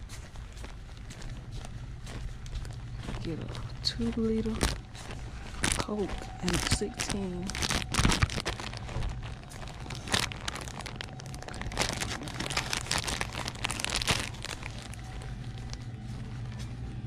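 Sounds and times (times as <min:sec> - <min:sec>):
low steady hum: 0:00.0 - 0:17.0
plastic packaging crinkling: 0:02.0 - 0:16.7.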